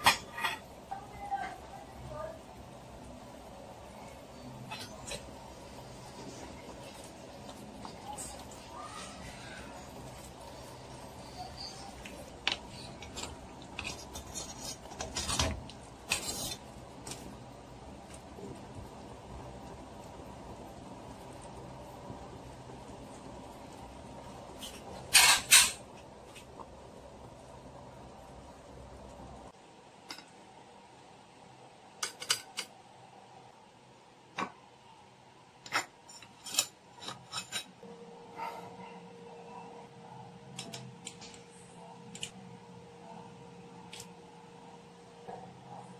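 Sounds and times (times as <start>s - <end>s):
utensils clinking on metal pot: 35.7s - 37.8s.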